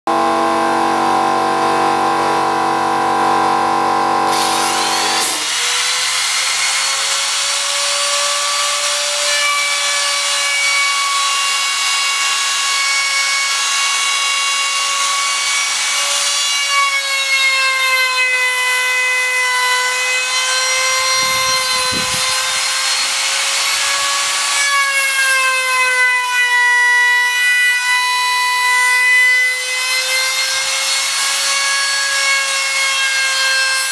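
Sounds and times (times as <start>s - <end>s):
low hum: 0.1s - 5.2s
router whining cutting wood: 0.1s - 33.9s.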